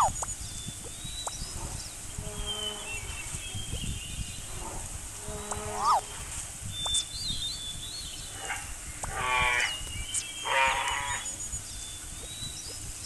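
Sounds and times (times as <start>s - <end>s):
thin high chirps: 0.0s - 4.6s, 5.2s - 8.4s
animal calls: 4.4s - 6.2s, 10.4s - 11.4s.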